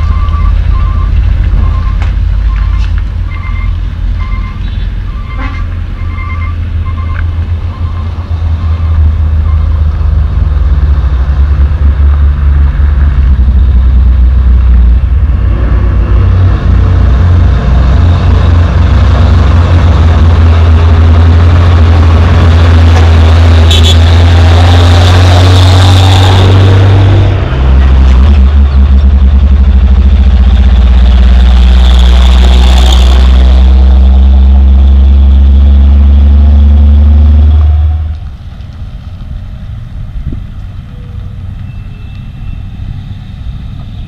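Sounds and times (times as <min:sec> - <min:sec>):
short beeps: 0:00.0 - 0:09.7
diesel truck engine drone: 0:00.0 - 0:44.0.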